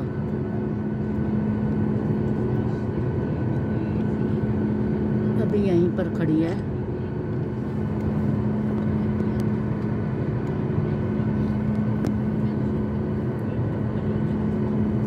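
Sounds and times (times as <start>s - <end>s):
jet engines idling cabin hum: 0.0s - 15.0s.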